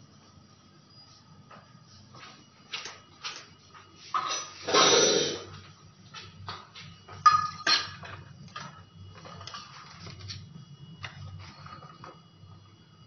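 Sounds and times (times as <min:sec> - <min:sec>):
pans and utensils clattering: 0:04.2 - 0:05.5, 0:07.2 - 0:09.9.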